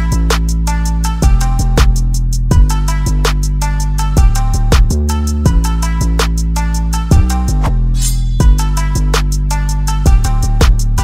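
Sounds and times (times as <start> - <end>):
heavy sustained bass: 0.0 - 11.0
regular drum hits: 7.1 - 9.4.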